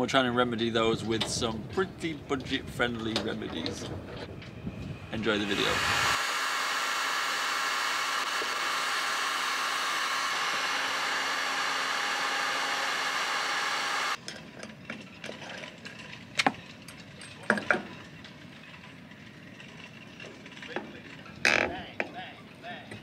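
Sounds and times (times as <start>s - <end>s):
heat gun fan hiss: 5.3s - 14.2s
metallic clicks and knocks: 14.2s - 22.2s.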